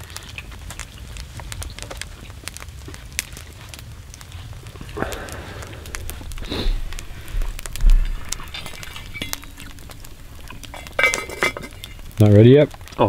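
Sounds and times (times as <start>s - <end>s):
campfire crackling and popping: 0.0s - 13.0s
dull low thumps: 5.0s - 11.0s.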